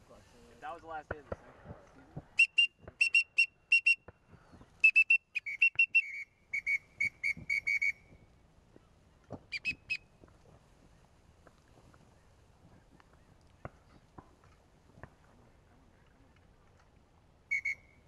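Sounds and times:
duck whistle call toots: 0:02.4 - 0:04.0, 0:04.8 - 0:08.0, 0:09.5 - 0:10.0, 0:17.5 - 0:18.0.

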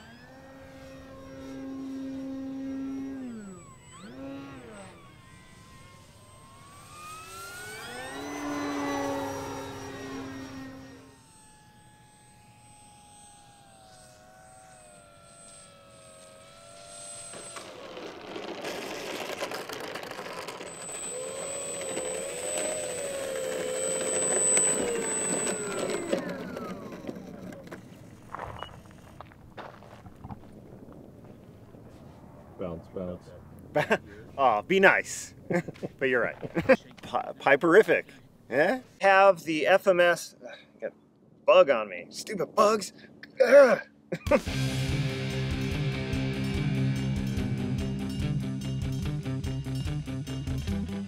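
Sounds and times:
model plane motor whine: 0:00.0 - 0:30.6, 0:44.3 - 0:51.0.

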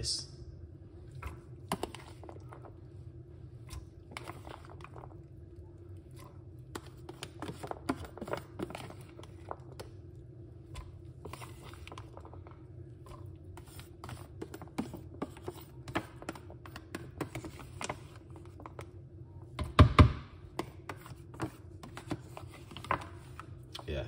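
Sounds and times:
steady low hum: 0:00.0 - 0:24.0
spoon scraping plastic tub: 0:01.2 - 0:02.7, 0:06.1 - 0:10.0, 0:10.7 - 0:12.4, 0:13.0 - 0:18.9, 0:20.5 - 0:23.5.

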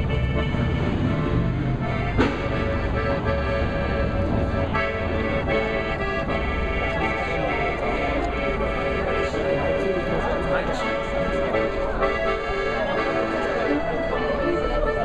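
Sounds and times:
accordion chords: 0:00.0 - 0:15.0
sharp knock: 0:02.2 - 0:02.5.

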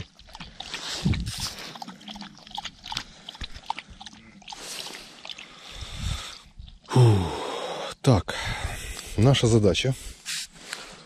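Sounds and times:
dog lapping water: 0:00.0 - 0:06.9.

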